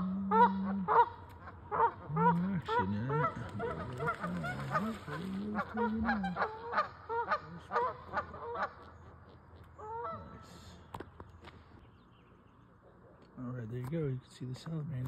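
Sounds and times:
goose honking: 0.0 - 10.7.

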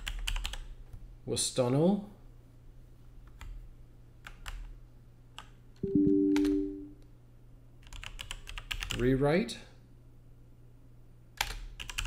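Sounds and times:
computer keyboard keystrokes: 0.0 - 0.7, 4.2 - 4.7, 7.8 - 9.0, 11.4 - 12.0
two-tone electronic chime: 5.8 - 7.0.

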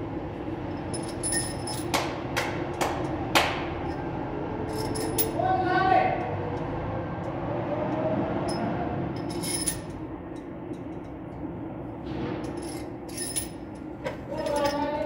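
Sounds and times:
steady low hum: 0.0 - 15.0
metallic clinks of tools: 4.7 - 5.4, 9.2 - 10.4.

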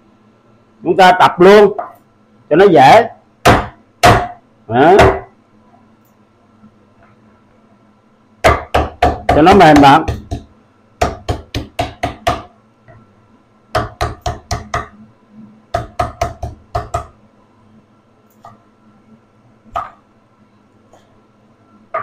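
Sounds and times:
knife chopping on cutting board: 8.4 - 12.5.

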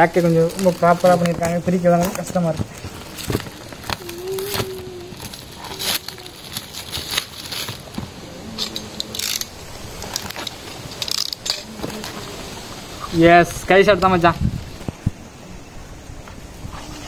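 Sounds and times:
plastic wrap crinkling and tearing: 0.0 - 12.5.

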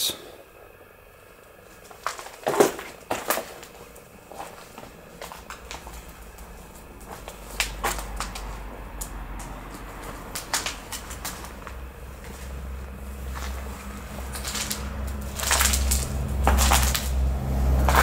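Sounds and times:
footsteps: 1.7 - 18.0
knocks and crackles of debris: 1.8 - 12.6, 13.2 - 18.0
low rumble: 5.0 - 18.0.

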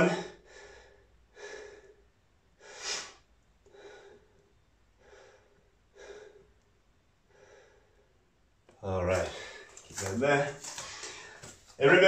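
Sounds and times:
man breathing hard: 0.0 - 6.6, 7.2 - 8.3.

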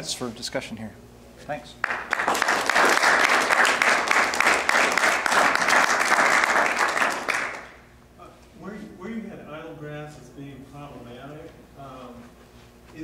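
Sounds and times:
audience applauding: 1.8 - 7.8.

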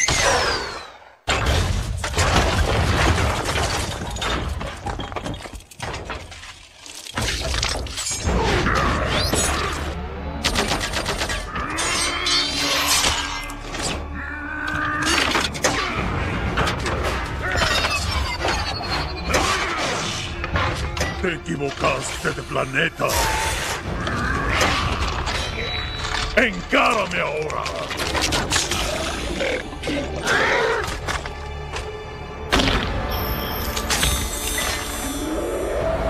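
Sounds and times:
falling rubble: 2.1 - 8.2
orchestral music: 19.0 - 24.0, 26.4 - 36.0.

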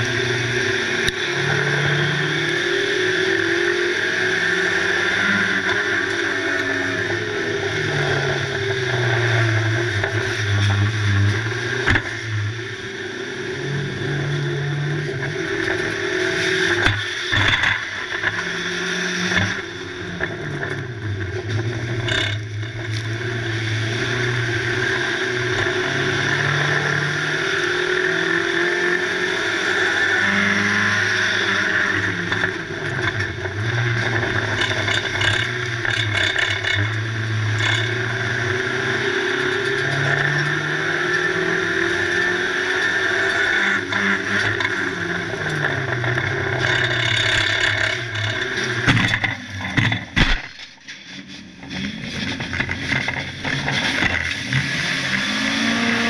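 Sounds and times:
race car engine revving: 0.0 - 56.0
sharp knocks and clatters: 46.7 - 51.0.

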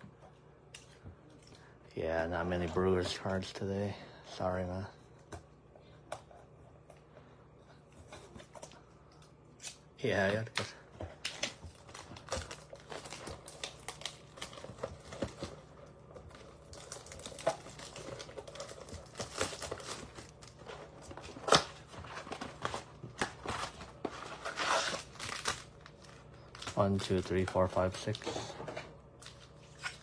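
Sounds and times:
wrappers crinkling and tearing: 10.4 - 28.4, 29.2 - 30.0.

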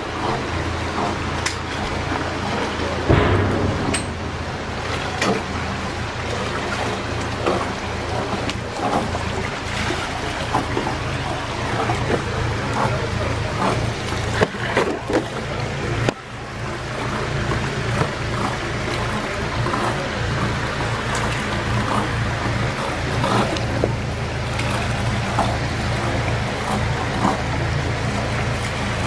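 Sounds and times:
small splashes and knocks: 0.0 - 29.0
water churning and lapping: 0.0 - 29.0
low rumble: 2.9 - 8.2.

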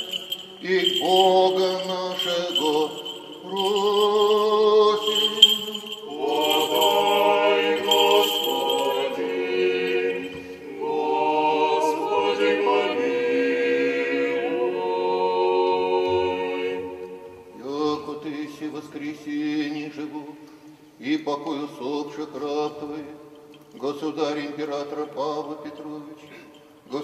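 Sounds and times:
choir singing a cappella: 8.6 - 17.7.

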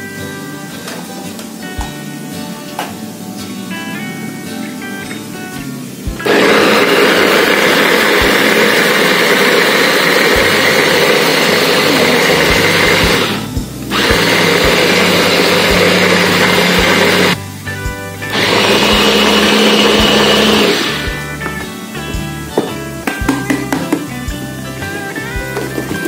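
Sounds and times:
electric chopper motor whirring: 6.2 - 17.4, 18.3 - 21.3.

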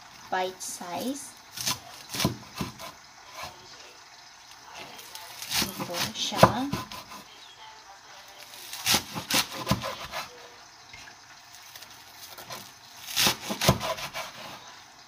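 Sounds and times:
cleaver chopping onions on board: 1.6 - 3.6, 5.5 - 7.2, 8.8 - 10.3, 12.4 - 14.6.

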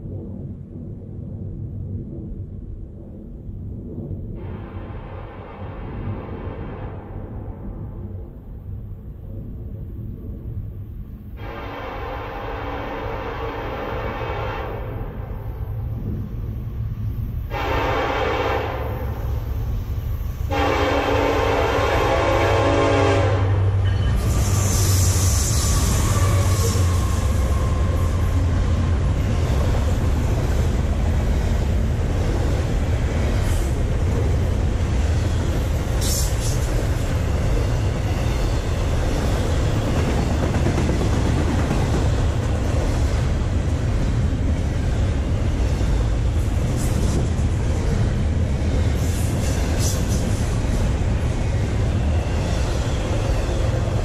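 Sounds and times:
rumble of train wheels on rail: 0.0 - 54.0
diesel locomotive passing: 10.8 - 54.0.

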